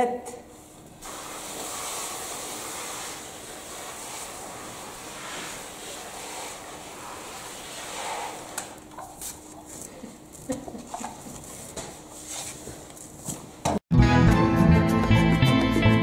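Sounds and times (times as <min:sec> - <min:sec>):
hose spray hiss: 0:01.0 - 0:08.8.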